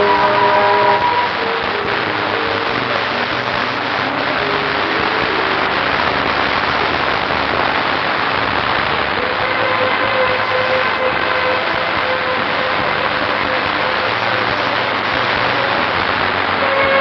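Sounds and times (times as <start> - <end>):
sustained musical chord: 0.0 - 3.0
steady rushing noise: 0.0 - 17.0.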